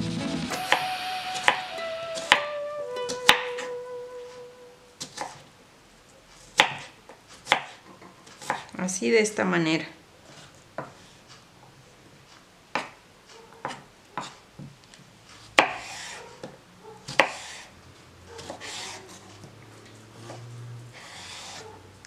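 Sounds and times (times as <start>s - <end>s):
knife scraping through cucumber: 15.7s - 16.2s, 17.2s - 17.7s, 18.4s - 19.4s, 21.0s - 21.7s.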